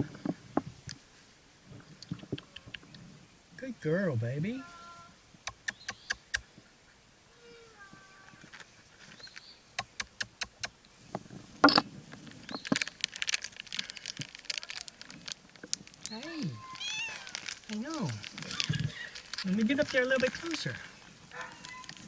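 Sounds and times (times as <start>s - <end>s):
faint cat meows: 4.6s - 5.2s, 7.3s - 8.5s, 16.2s - 17.4s, 21.4s - 22.0s.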